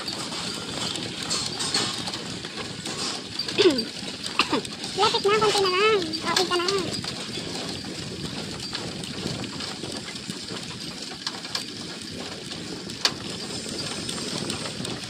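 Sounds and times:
motorcycle engine running: 0.0s - 15.0s
road and wind noise: 0.0s - 15.0s.

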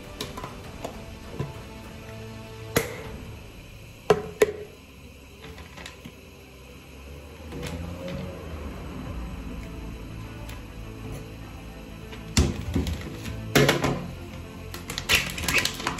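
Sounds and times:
plastic packet rustling: 14.9s - 15.9s.

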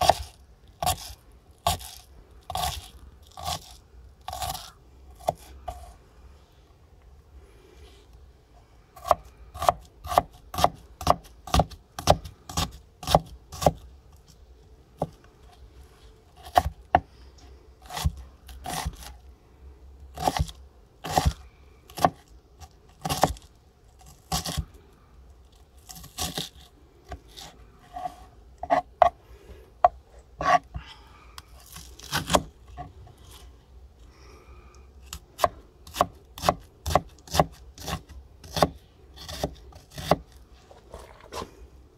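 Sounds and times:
knife chopping onion on board: 0.0s - 1.1s, 9.0s - 13.8s, 16.4s - 17.1s, 20.2s - 21.4s, 22.0s - 22.2s, 35.1s - 40.2s.

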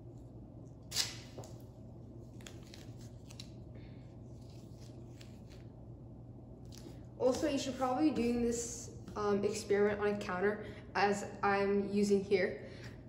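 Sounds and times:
low steady hum: 0.0s - 13.0s
tape ripping: 0.8s - 1.6s, 2.3s - 3.6s
tape crinkling: 0.8s - 3.7s, 4.3s - 5.8s.

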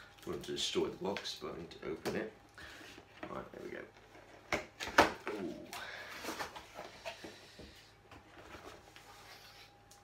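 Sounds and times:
cardboard scraping and rustling: 8.1s - 9.7s.

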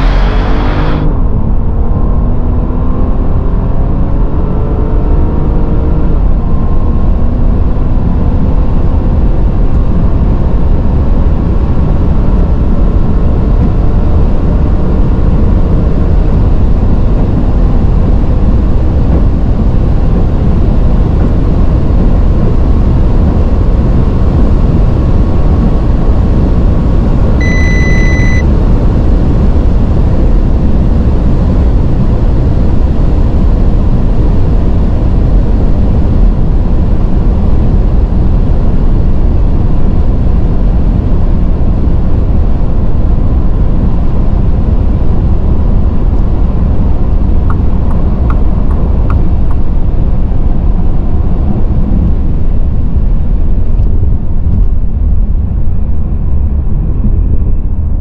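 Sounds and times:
short electronic beep: 0.0s - 1.1s, 27.4s - 28.5s
engine wind and tyre rush: 0.0s - 58.0s.

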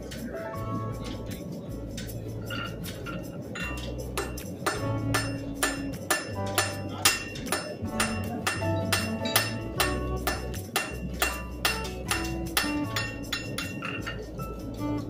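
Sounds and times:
low steady hum: 0.0s - 15.0s
hammer striking anvil: 2.4s - 14.2s.

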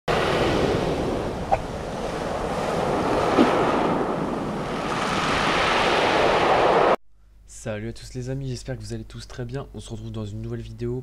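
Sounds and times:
surf washing up shingle beach: 0.1s - 7.0s.

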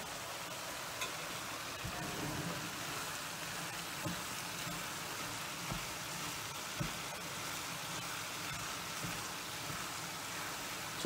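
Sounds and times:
food sizzling in a frying pan: 0.0s - 11.0s
spatula knocking against pan: 5.6s - 7.2s, 8.4s - 10.0s.

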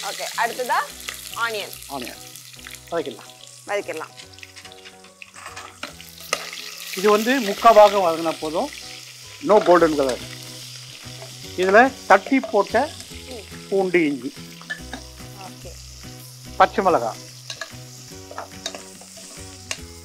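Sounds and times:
background music: 0.0s - 20.0s
spices sizzling in hot oil: 0.0s - 20.0s
ladle stirring: 14.6s - 15.1s, 17.4s - 19.8s.

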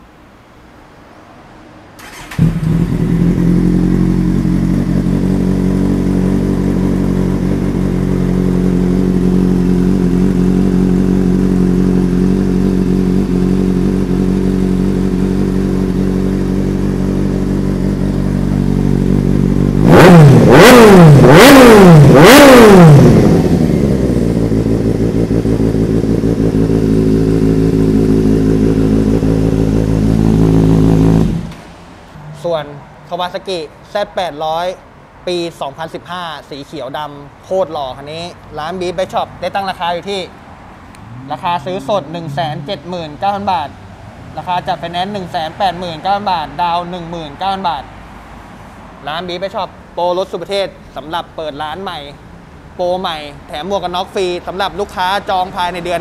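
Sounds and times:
motorcycle throttle blips: 2.0s - 33.2s
motorcycle engine idling: 2.1s - 21.4s, 22.0s - 31.5s.

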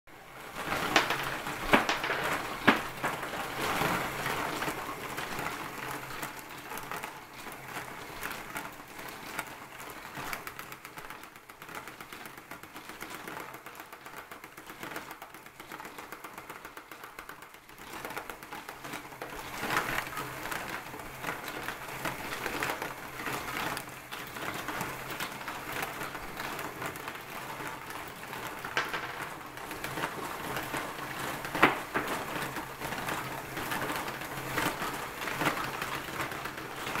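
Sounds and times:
marbles clattering through plastic tracks: 0.2s - 37.0s.

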